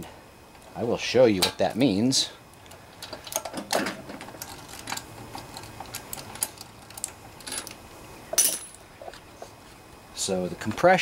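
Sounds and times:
metal hand tools clinking: 0:08.4 - 0:08.8.

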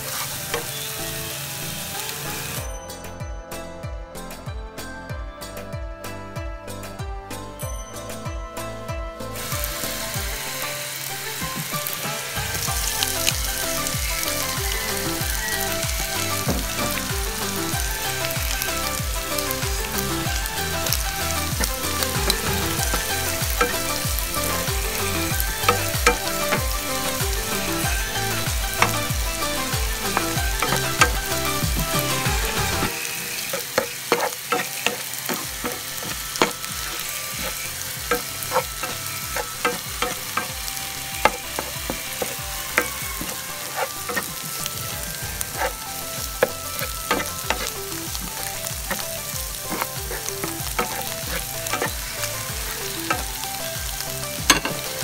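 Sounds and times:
food sizzling in oil: 0:00.0 - 0:02.7, 0:09.3 - 0:55.0
utensil clicking and scraping pan: 0:12.8 - 0:53.8.

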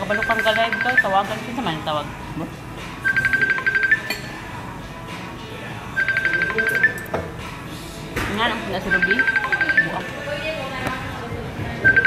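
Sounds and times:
mobile phone trilling ring: 0:03.0 - 0:04.1, 0:06.0 - 0:07.0, 0:08.9 - 0:10.0.

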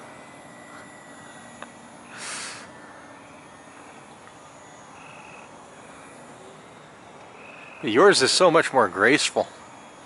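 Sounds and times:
model airplane motor whine: 0:00.0 - 0:10.0
loud hiss: 0:02.0 - 0:02.7.

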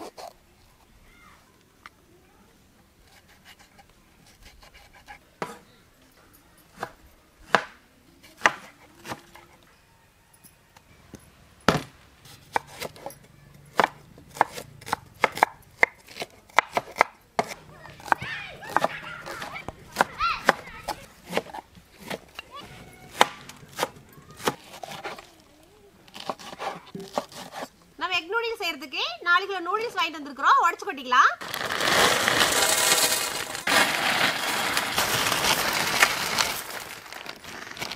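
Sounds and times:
knife chopping on wooden board: 0:13.8 - 0:22.2.

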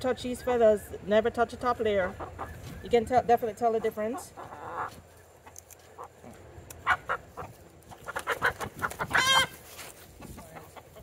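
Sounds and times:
chickens clucking: 0:00.0 - 0:11.0
chicken squawk: 0:04.0 - 0:05.0, 0:06.8 - 0:09.6.

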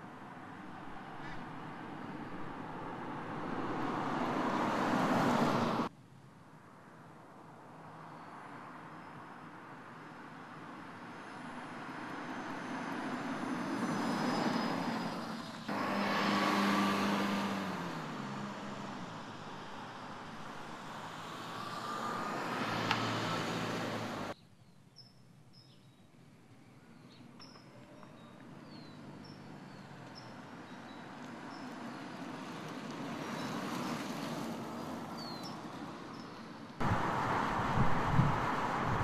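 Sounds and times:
car driving past: 0:11.3 - 0:24.4, 0:36.8 - 0:39.0.

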